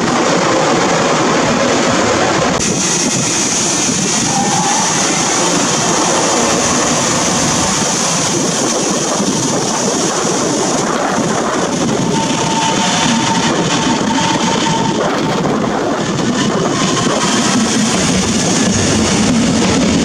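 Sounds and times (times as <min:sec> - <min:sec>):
train wheels on rail: 0:00.0 - 0:20.0
thin high whine: 0:02.7 - 0:09.2, 0:11.2 - 0:15.9.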